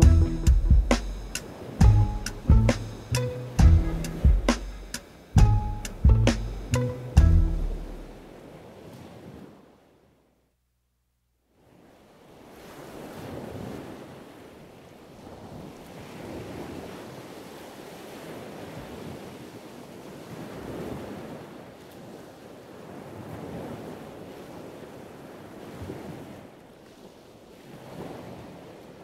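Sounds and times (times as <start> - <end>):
surf washing onto beach: 0.0 - 5.5, 11.8 - 14.4.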